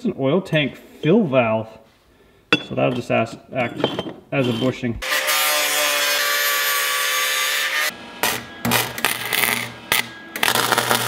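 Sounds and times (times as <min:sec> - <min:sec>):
low welder buzz: 0:05.0 - 0:11.0
welding arc crackle: 0:07.8 - 0:11.0.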